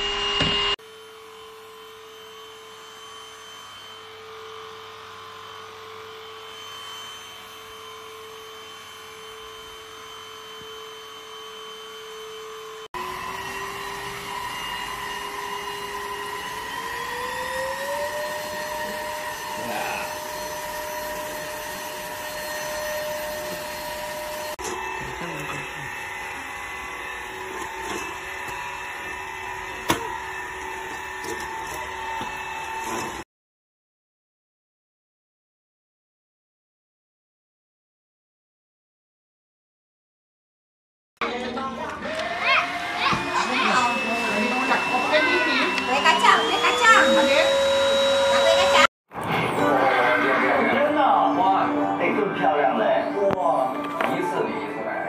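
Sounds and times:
vacuum cleaner motor whine: 0.0 - 33.2, 41.2 - 48.9, 49.6 - 55.0.

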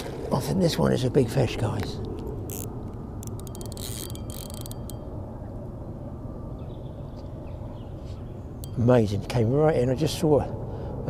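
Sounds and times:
fishing reel ratcheting clicks: 2.5 - 5.0.

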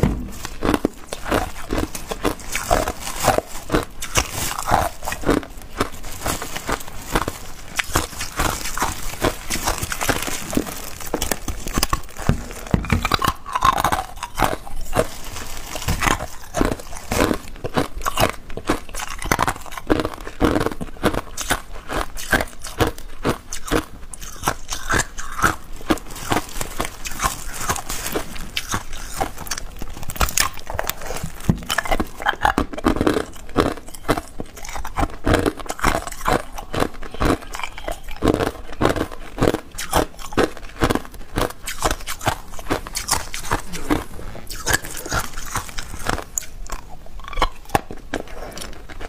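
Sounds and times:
ice cubes crunching and clicking: 0.0 - 49.0.

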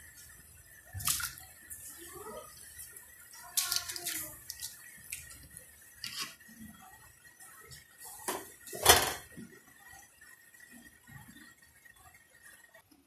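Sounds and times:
water splashing in a metal pot: 0.9 - 1.6, 3.3 - 6.4.

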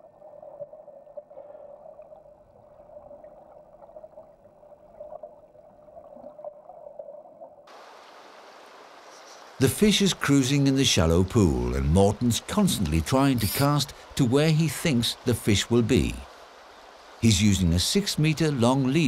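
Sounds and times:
underwater stream gurgling: 0.0 - 17.3
river running over stones: 7.6 - 19.0.

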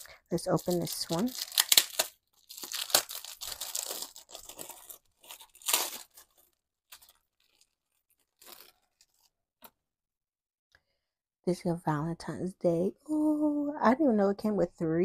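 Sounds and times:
packaging tearing and crinkling: 0.0 - 9.4.

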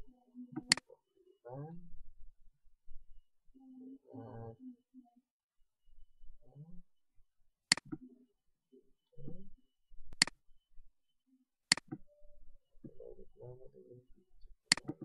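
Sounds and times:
computer mouse clicks: 0.5 - 0.9, 7.7 - 8.1, 11.7 - 12.1, 14.7 - 15.0.

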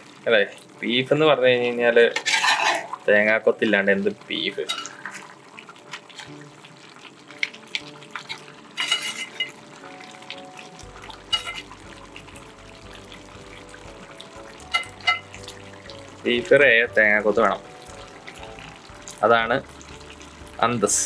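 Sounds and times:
spatula scraping metal pot: 2.2 - 3.0, 4.6 - 5.3, 8.8 - 9.6, 11.3 - 11.8.

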